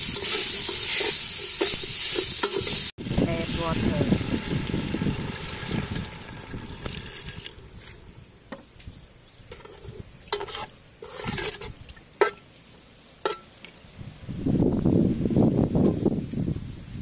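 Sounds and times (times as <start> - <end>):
water poured into pot: 3.7 - 7.6
metal ladle stirring soup: 9.5 - 12.4
ladle clinking against pot: 13.2 - 13.5.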